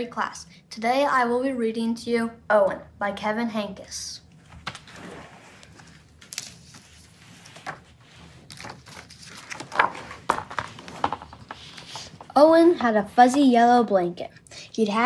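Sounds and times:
book pages turning: 0:04.4 - 0:12.4.

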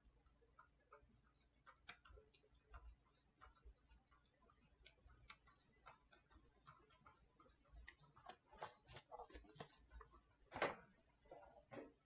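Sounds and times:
spreader tapping thermal paste: 0:00.0 - 0:12.0.

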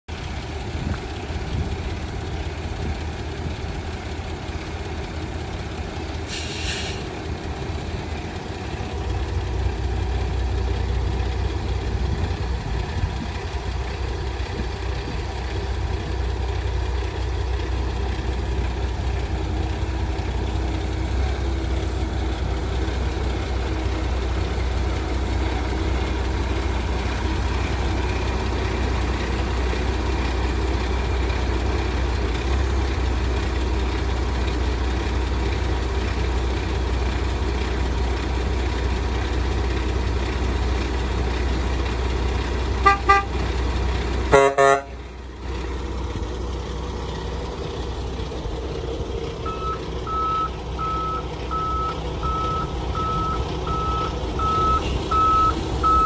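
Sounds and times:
diesel engine idling: 0:00.1 - 0:56.0
brief hiss: 0:06.3 - 0:07.1.

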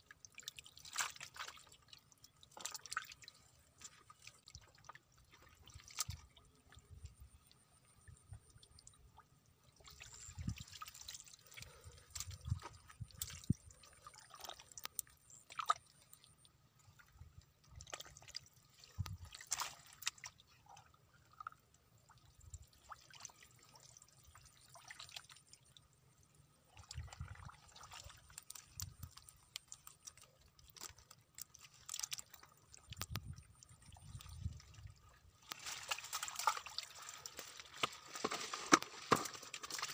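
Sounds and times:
small water splashes and drips: 0:00.0 - 0:39.9
hands squelching through mud: 0:35.4 - 0:39.9.

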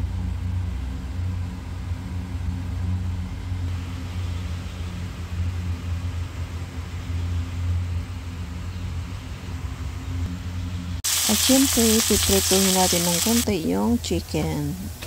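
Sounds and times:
low hum of motor: 0:00.0 - 0:15.0
faint hiss: 0:11.1 - 0:15.0.

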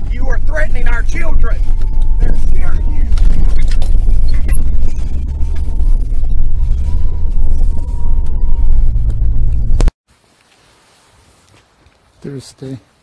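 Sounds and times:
road and wind noise in car: 0:00.0 - 0:09.9.

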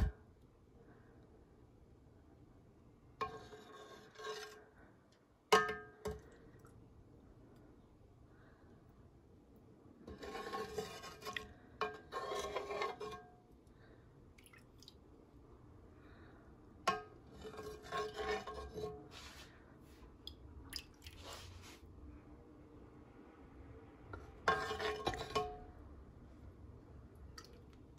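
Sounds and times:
metal ladle scraping metal pot: 0:03.2 - 0:04.7, 0:10.0 - 0:13.3, 0:16.9 - 0:19.5, 0:24.2 - 0:25.8.

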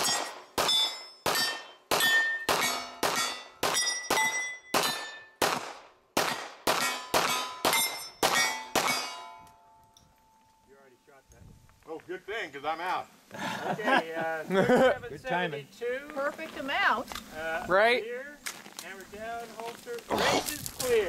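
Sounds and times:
steel plate clanging: 0:00.0 - 0:05.4, 0:06.7 - 0:09.5.

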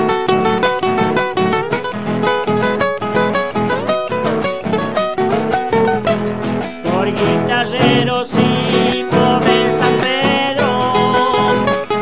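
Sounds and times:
guitars strummed and picked: 0:00.0 - 0:12.0
person singing with vibrato: 0:06.8 - 0:12.0.

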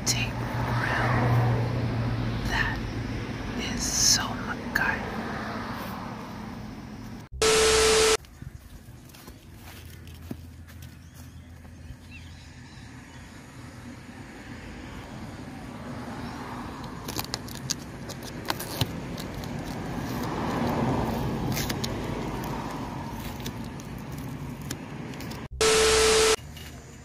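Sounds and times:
duct tape crinkling: 0:17.0 - 0:25.5.

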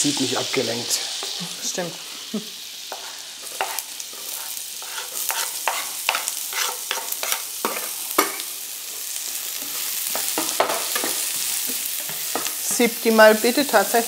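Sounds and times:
onions sizzling in pan: 0:00.0 - 0:14.0
utensil scraping pan: 0:02.9 - 0:08.4.

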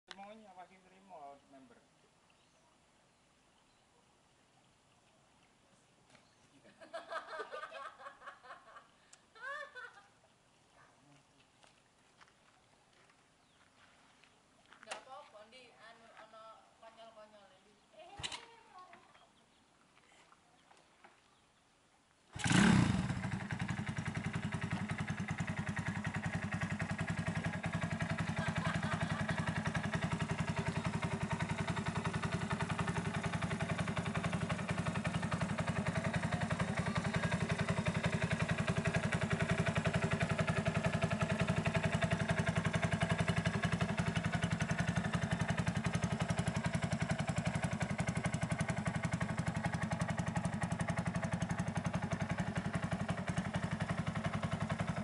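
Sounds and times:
motorcycle engine starting and idling: 0:18.0 - 0:19.0, 0:22.3 - 0:55.0.

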